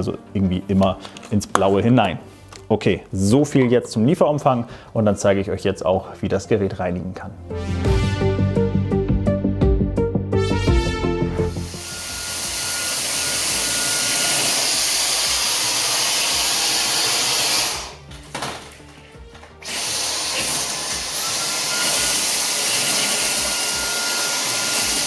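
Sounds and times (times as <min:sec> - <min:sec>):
stick vacuum running: 0:11.5 - 0:18.0, 0:19.6 - 0:25.0.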